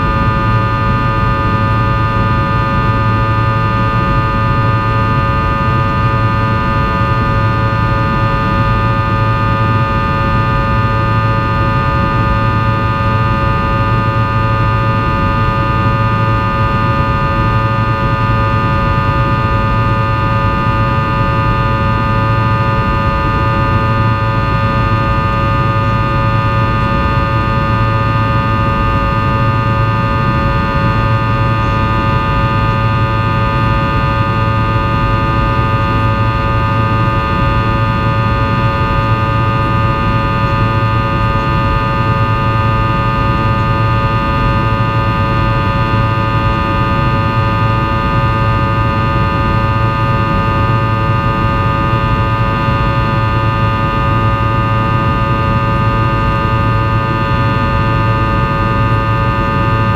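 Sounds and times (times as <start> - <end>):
jet engine drone in cabin: 0.0 - 59.9.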